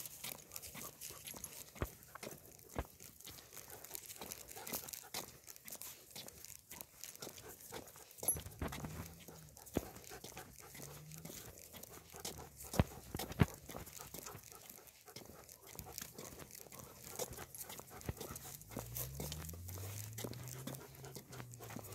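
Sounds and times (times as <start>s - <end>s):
leash clicks and rustles: 0.0s - 21.9s.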